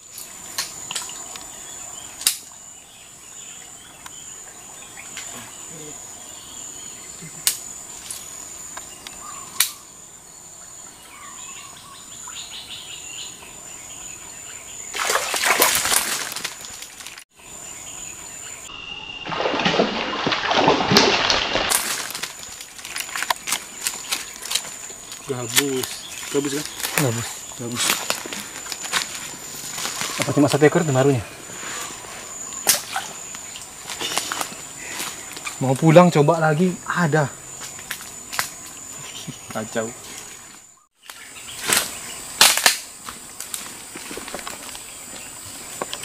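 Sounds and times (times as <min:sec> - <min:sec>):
high insect drone: 0:00.0 - 0:46.0
fish splashing in water: 0:14.9 - 0:17.2, 0:19.2 - 0:25.1.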